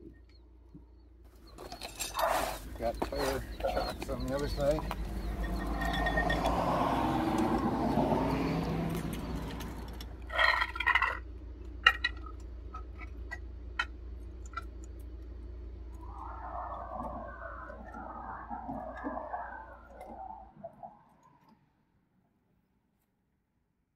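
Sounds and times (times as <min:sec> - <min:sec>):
vehicle passing: 0:02.6 - 0:10.4, 0:15.9 - 0:21.0.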